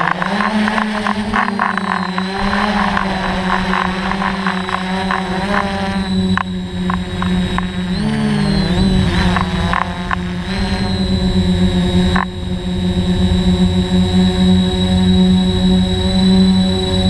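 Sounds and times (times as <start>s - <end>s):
sharp clicks: 0.0s - 10.3s
drone motors buzzing: 0.0s - 17.0s.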